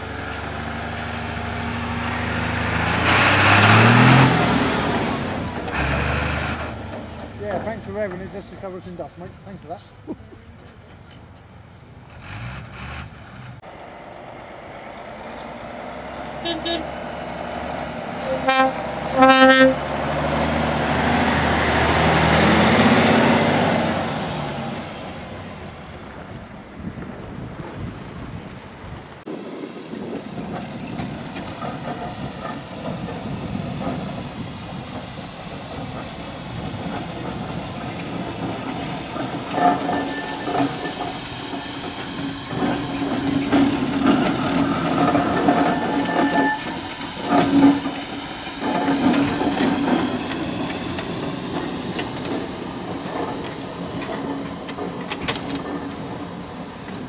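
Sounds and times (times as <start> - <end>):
diesel engine pulling away: 0.0 - 57.0
steam locomotive hissing: 15.1 - 25.7, 29.3 - 57.0
lorry horn blasts: 16.4 - 17.0, 18.2 - 19.9.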